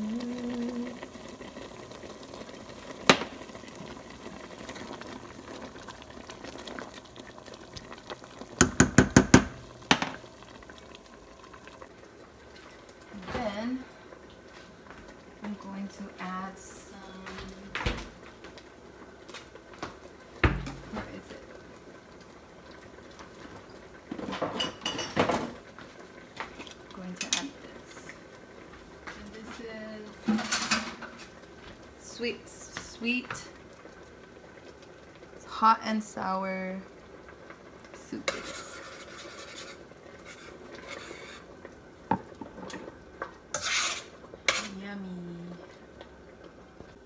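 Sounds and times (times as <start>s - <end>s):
soup boiling with hiss: 0.0s - 47.0s.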